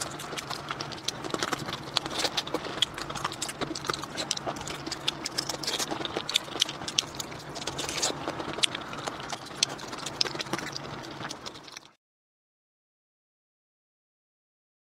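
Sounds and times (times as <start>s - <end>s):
wet chewing and lip smacks: 0.0s - 12.0s.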